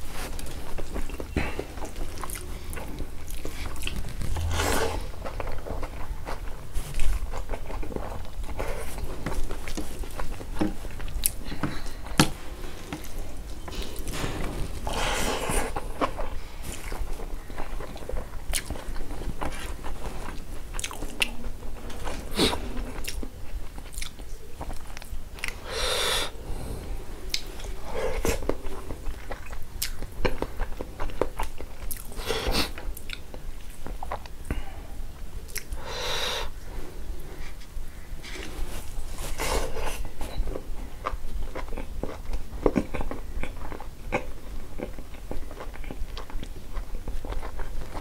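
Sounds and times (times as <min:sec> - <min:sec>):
person chewing food: 0:00.0 - 0:36.7, 0:37.4 - 0:48.0.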